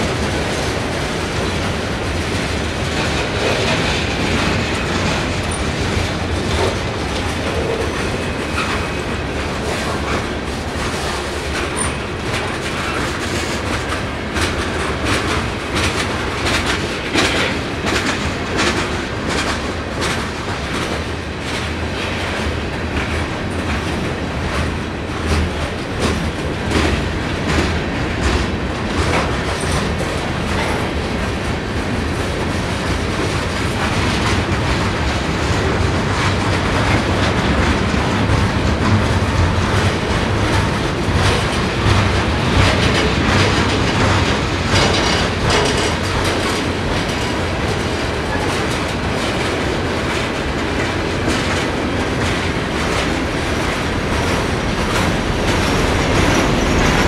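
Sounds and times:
clickety-clack over rail joints: 0:00.0 - 0:57.0
train wheels rumbling on rail: 0:00.0 - 0:57.0.

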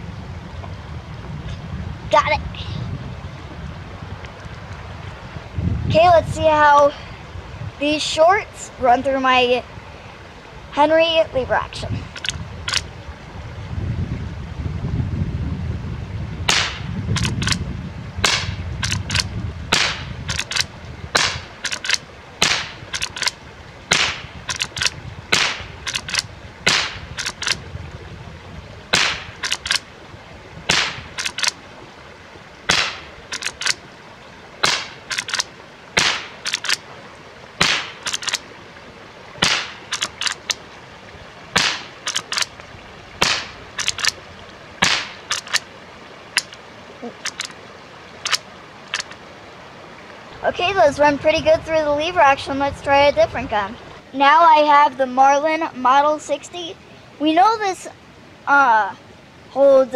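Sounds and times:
rifle shots cracking: 0:16.5 - 0:17.6, 0:18.2 - 0:27.6, 0:28.9 - 0:29.8, 0:30.7 - 0:31.6, 0:32.7 - 0:33.8, 0:34.6 - 0:36.8, 0:37.6 - 0:38.4, 0:39.4 - 0:40.6, 0:41.6 - 0:42.6, 0:43.2 - 0:44.2, 0:44.8 - 0:45.6
rifle lever clacking: 0:17.2 - 0:17.6, 0:18.8 - 0:19.3, 0:20.3 - 0:22.0, 0:22.9 - 0:23.4, 0:29.4 - 0:29.8, 0:31.2 - 0:31.6, 0:32.7 - 0:33.8, 0:34.6 - 0:36.8, 0:38.0 - 0:38.4, 0:39.4 - 0:40.6, 0:41.6 - 0:42.6, 0:43.2 - 0:44.2, 0:44.8 - 0:45.6, 0:47.2 - 0:47.5.

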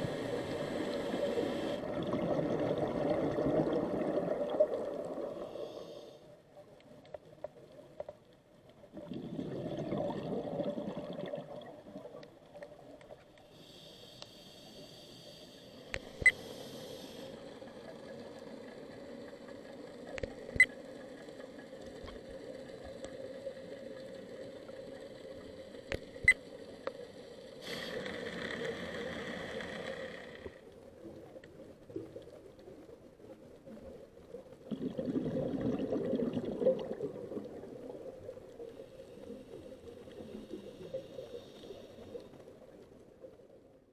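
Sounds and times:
exhaled bubbles rumbling: 0:01.8 - 0:05.4, 0:08.9 - 0:12.4, 0:31.0 - 0:38.6
diver breathing through regulator: 0:05.4 - 0:06.3, 0:13.5 - 0:17.5, 0:27.6 - 0:30.6.

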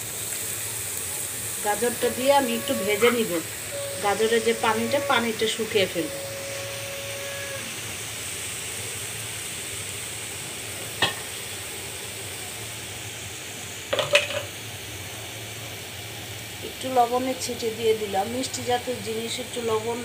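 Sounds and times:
carrot sizzling in a pan: 0:00.0 - 0:20.0
brief steady tone: 0:01.7 - 0:07.8.

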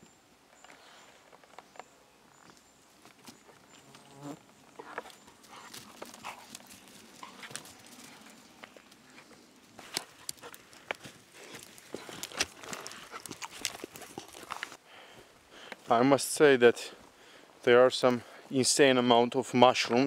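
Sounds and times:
rustling leaves and twigs: 0:00.0 - 0:14.8
dog footfalls pattering: 0:04.8 - 0:09.0, 0:09.7 - 0:14.8.

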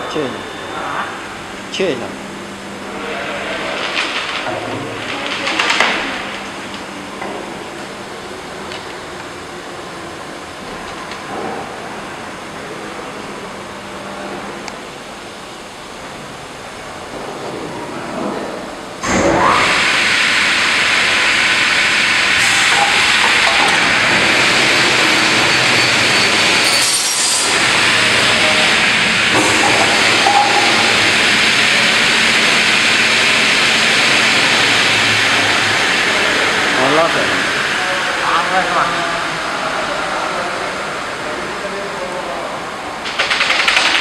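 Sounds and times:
saw cutting panel: 0:22.3 - 0:32.4.

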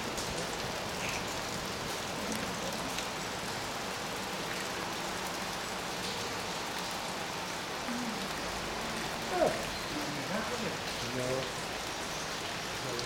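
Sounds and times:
rain falling: 0:00.0 - 0:13.0.

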